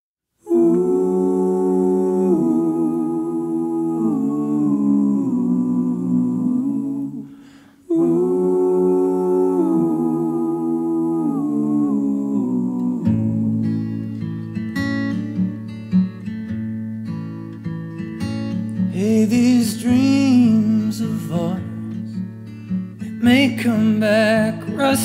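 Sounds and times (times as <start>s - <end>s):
hummed vocal harmonies: 0.4s - 14.4s
acoustic guitar strumming: 12.8s - 25.0s.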